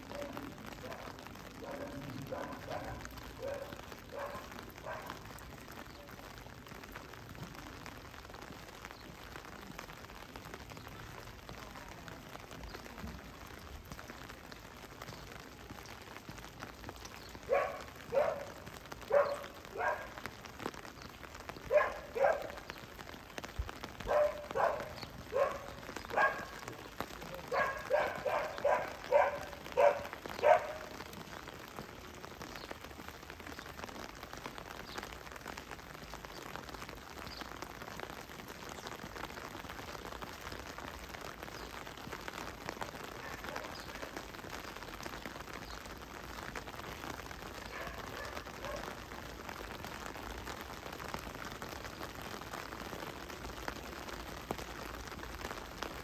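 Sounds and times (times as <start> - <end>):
steady rain patter: 0.0 - 56.0
dog barking: 0.1 - 5.2, 17.5 - 20.2, 21.7 - 22.6, 24.0 - 26.6, 27.4 - 31.0, 43.2 - 43.8, 47.6 - 49.0.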